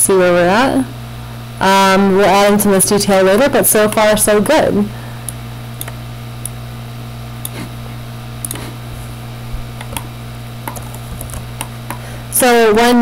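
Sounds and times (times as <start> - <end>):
electrical hum: 0.0 - 13.0
computer mouse clicks: 5.3 - 6.6, 8.4 - 8.6, 9.8 - 12.0.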